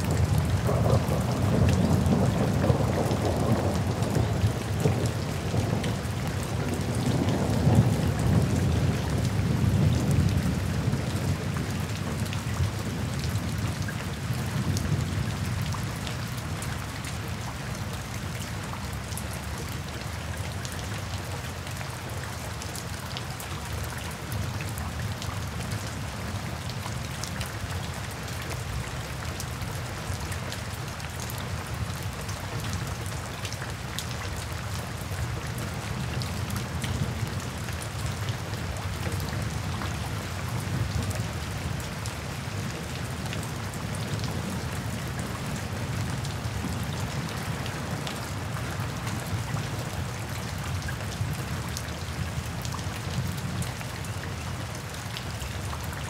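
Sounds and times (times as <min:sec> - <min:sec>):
rolling thunder: 0:00.0 - 0:12.2
raindrops ticking: 0:00.0 - 0:13.4
rain falling through forest: 0:00.0 - 0:56.0.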